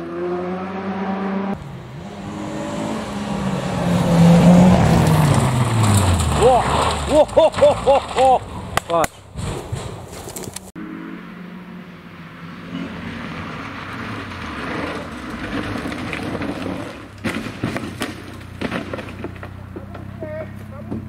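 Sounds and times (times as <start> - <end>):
rally car engine running: 0.0 - 21.0
car crashing impacts: 4.6 - 10.7, 13.8 - 21.0
tyres hissing on gravel: 5.4 - 8.5.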